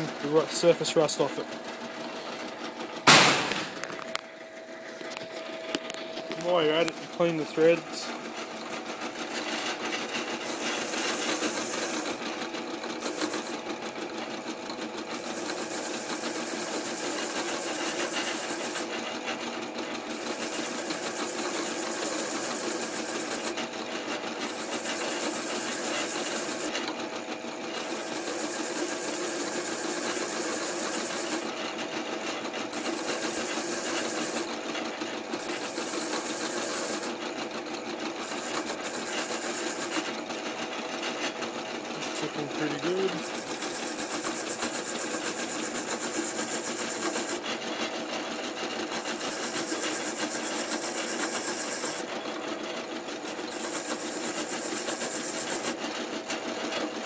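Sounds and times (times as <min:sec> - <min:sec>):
grinder motor hum: 0:00.0 - 0:57.0.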